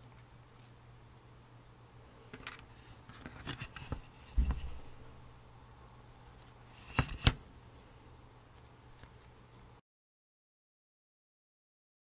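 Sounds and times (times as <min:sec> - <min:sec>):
low steady hum: 0:00.0 - 0:09.8
dull thump: 0:04.3 - 0:04.9.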